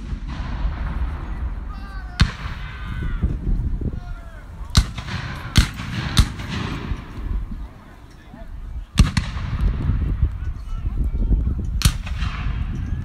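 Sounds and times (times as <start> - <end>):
distant musket shots: 0.0 - 2.9, 4.7 - 7.7, 8.9 - 9.7, 11.8 - 12.8
people's voices: 0.7 - 13.0.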